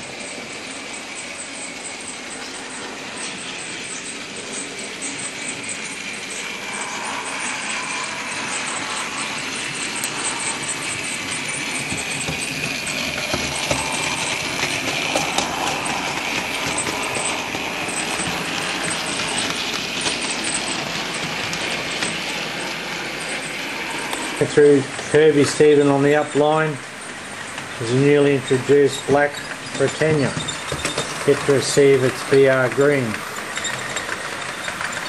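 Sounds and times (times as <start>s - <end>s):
electric motor whine: 0.0s - 25.7s.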